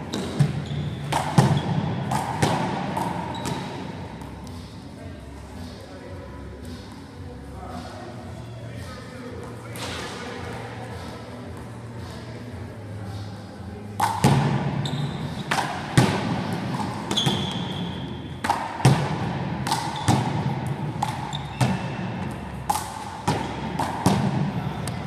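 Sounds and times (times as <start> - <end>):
trainers squeaking on floor: 0.1 - 1.9, 14.8 - 15.5, 17.1 - 18.2, 21.2 - 22.1.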